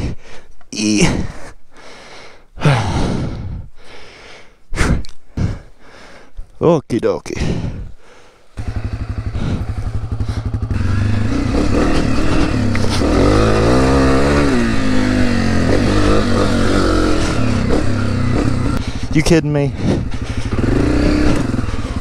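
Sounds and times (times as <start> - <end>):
dirt bike engine revving: 8.5 - 22.0.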